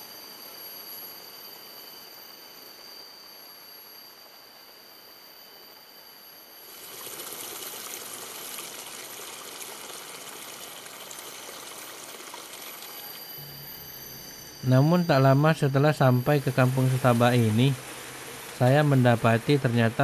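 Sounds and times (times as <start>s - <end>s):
steady high tones: 11.3s - 20.0s.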